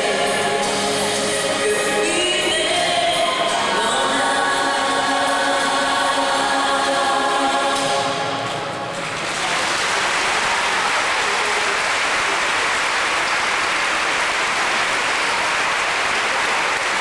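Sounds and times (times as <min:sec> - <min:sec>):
audience applause: 0:08.8 - 0:17.0.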